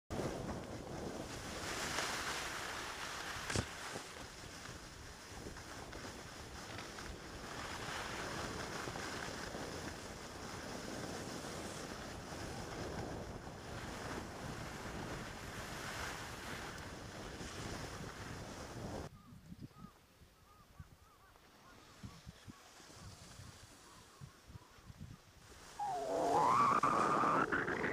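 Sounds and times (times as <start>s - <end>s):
wind buffeting microphone: 21.9s - 27.9s.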